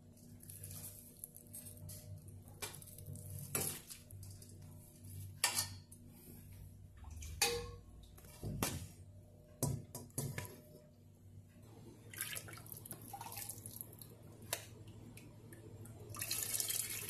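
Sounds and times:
faint steady hum: 0:00.0 - 0:17.0
metal tongs clanking on bowl: 0:07.4 - 0:07.8.

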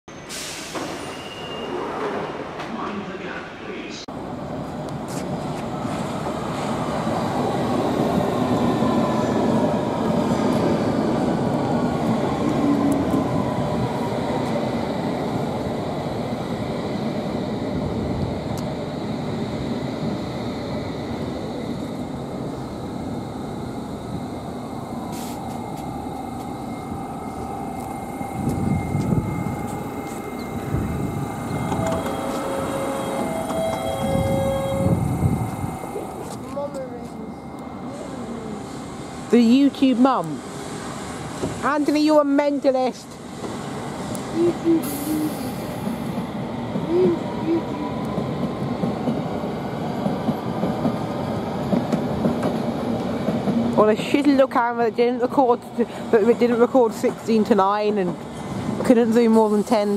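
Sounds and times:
train wheels rumbling on rails: 0:04.6 - 0:59.9
electric train running: 0:15.0 - 0:40.1
electric train motor whine: 0:27.3 - 0:36.3.

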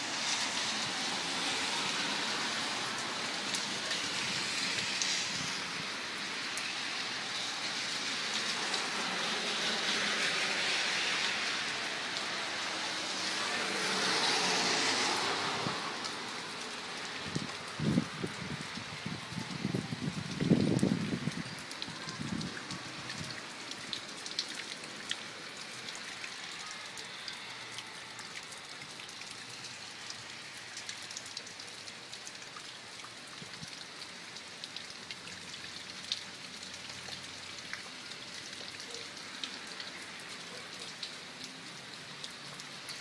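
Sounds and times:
steady rain hissing: 0:00.0 - 0:43.0
raindrops ticking: 0:16.0 - 0:43.0.

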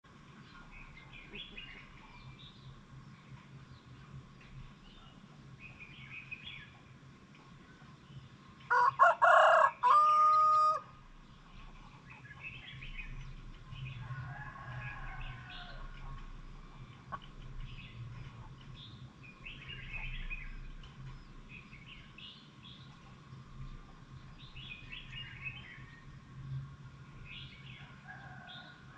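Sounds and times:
small birds chirping: 0:00.1 - 0:09.0, 0:09.9 - 0:28.9
rooster crowing: 0:08.7 - 0:10.9, 0:14.0 - 0:16.0, 0:27.8 - 0:28.9.

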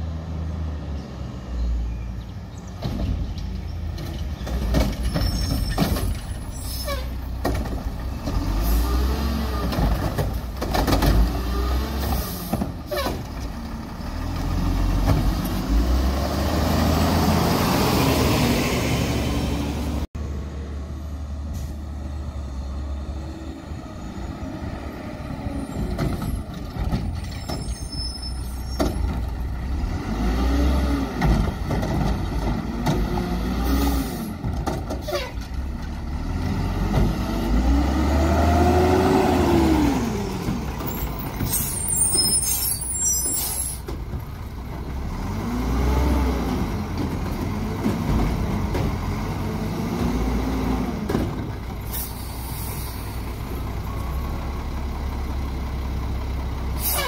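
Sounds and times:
diesel engine revving: 0:05.6 - 0:27.6, 0:28.7 - 0:57.0
air brake hisses: 0:41.5 - 0:43.8, 0:51.9 - 0:53.2, 0:56.8 - 0:57.0.

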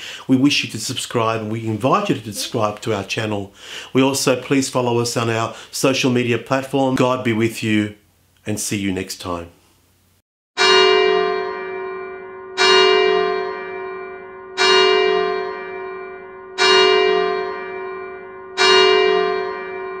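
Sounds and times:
church bell tolling: 0:10.6 - 0:20.0.

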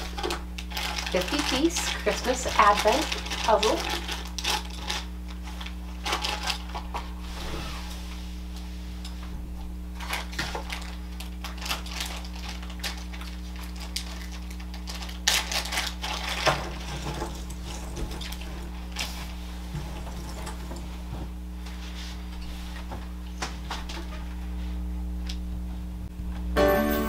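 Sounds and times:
plastic bag crinkling: 0:00.0 - 0:07.2, 0:10.0 - 0:19.4
steady low hum: 0:00.0 - 0:27.0.

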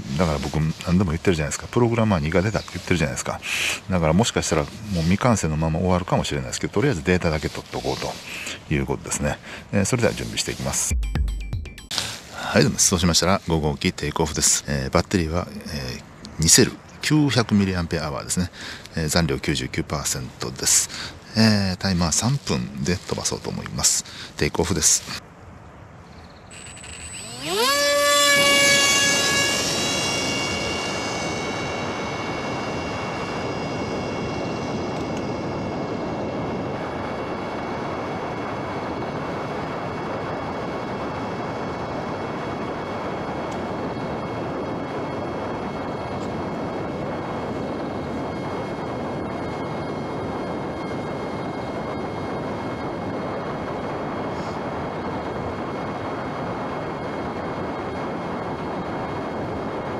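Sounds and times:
rushing air noise: 0:00.0 - 0:11.1, 0:11.8 - 0:13.6, 0:25.9 - 0:59.9
electric motor and propeller whine: 0:26.5 - 0:59.9.

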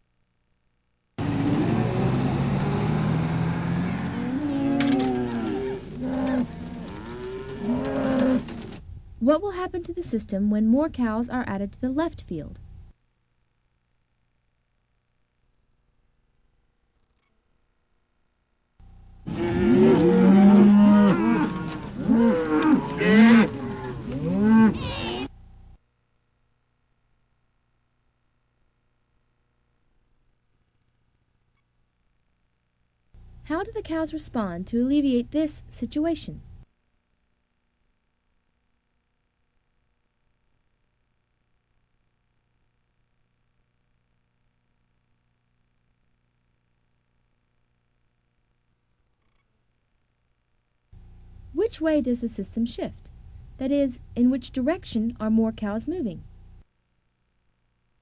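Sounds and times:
cows mooing: 0:01.2 - 0:08.8, 0:19.2 - 0:25.3.

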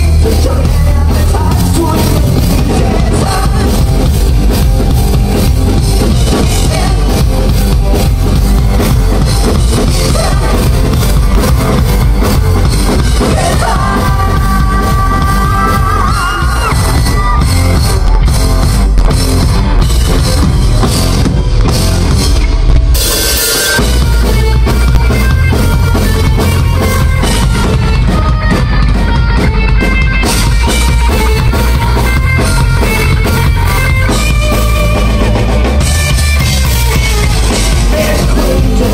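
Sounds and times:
person singing: 0:00.0 - 0:04.1, 0:06.3 - 0:07.6, 0:13.0 - 0:18.1, 0:37.2 - 0:38.9
rock band playing live: 0:00.0 - 0:38.9.

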